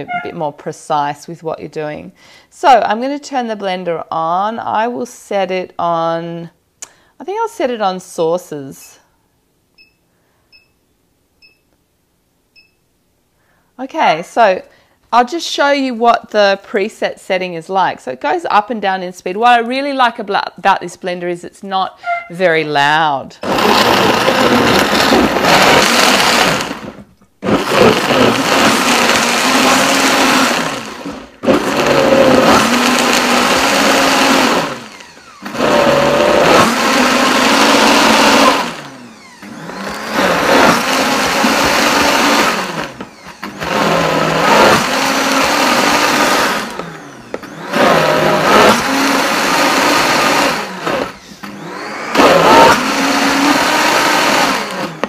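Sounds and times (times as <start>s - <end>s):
blender motor running: 23.4s - 55.0s.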